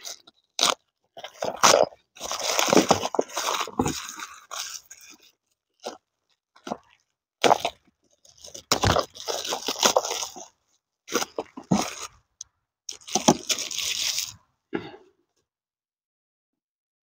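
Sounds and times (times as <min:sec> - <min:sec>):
plastic bags crinkling: 0:00.0 - 0:06.0, 0:06.6 - 0:10.5, 0:11.1 - 0:12.2, 0:12.9 - 0:14.4.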